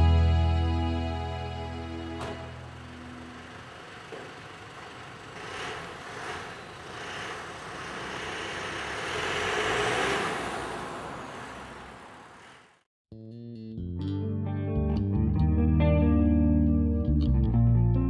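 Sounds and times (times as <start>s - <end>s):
electric guitar music: 0.0s - 3.5s, 13.2s - 18.0s
truck driving past: 0.0s - 12.8s.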